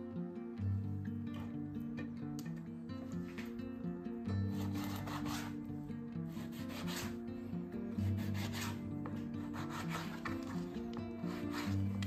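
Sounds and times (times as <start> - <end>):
background music: 0.0 - 12.0
knife sawing through fish: 4.6 - 5.6, 6.4 - 7.2, 8.1 - 8.8, 9.5 - 10.6, 11.2 - 11.8
knife scraping cutting board: 4.6 - 5.6, 6.4 - 7.2, 8.1 - 8.8, 9.4 - 12.0.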